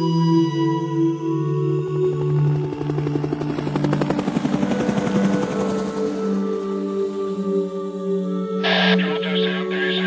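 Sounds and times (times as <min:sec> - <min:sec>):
sustained music tones: 0:06.3 - 0:10.0.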